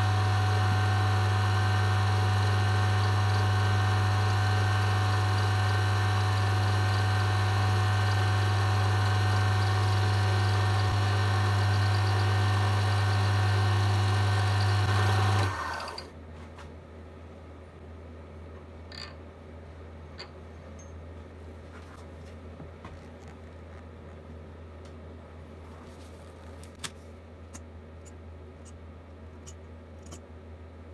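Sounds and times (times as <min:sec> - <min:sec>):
wood lathe running: 0:00.0 - 0:16.0.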